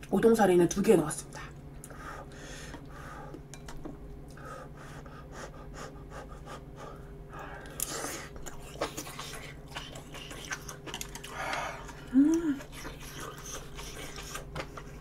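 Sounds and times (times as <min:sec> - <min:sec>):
person chewing: 0:07.4 - 0:15.0
person slurping: 0:07.6 - 0:14.5.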